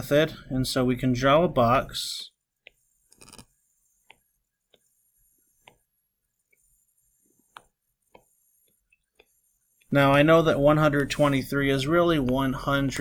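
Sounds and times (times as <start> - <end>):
stylus clicking on drawing tablet: 2.5 - 10.2.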